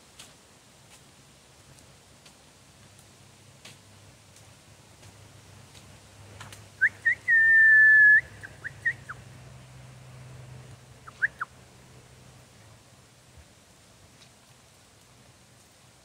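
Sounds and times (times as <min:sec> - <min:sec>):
person whistling: 0:06.8 - 0:09.1.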